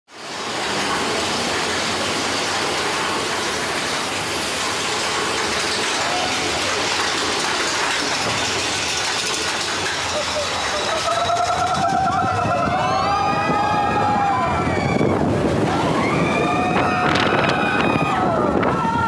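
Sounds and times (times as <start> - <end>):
roller coaster wheels on track: 0.1 - 19.0
wind rushing past: 11.8 - 19.0.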